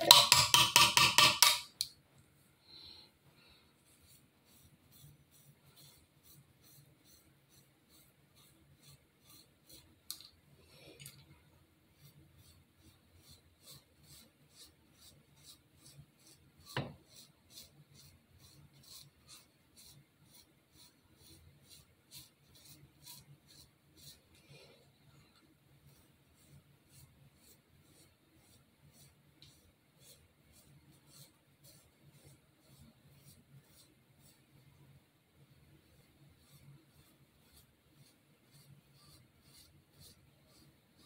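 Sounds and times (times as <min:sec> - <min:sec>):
razor scraping hair: 0:04.0 - 0:09.9, 0:12.0 - 0:24.4, 0:36.4 - 0:41.0.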